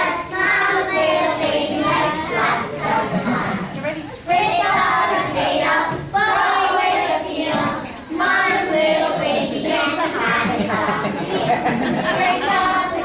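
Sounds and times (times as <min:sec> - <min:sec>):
children singing together: 0:00.0 - 0:13.0.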